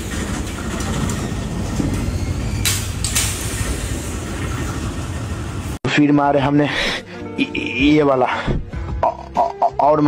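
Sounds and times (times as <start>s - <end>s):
street noise: 0.0s - 5.8s
wind: 0.0s - 5.8s.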